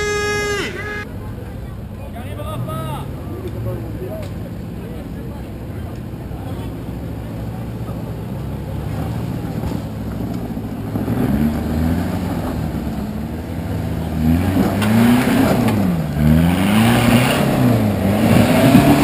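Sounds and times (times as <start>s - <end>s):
truck engine revving: 0.0s - 1.4s, 6.7s - 19.0s.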